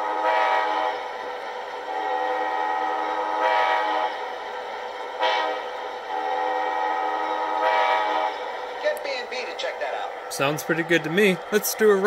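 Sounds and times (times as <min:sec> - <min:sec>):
locomotive horn blasts from speaker: 0:00.0 - 0:00.8, 0:02.0 - 0:04.0, 0:05.2 - 0:05.6, 0:06.2 - 0:08.3.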